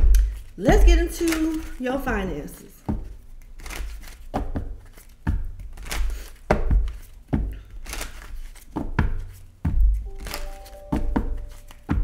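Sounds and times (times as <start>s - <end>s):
cards sliding when shuffled: 2.8s - 12.0s.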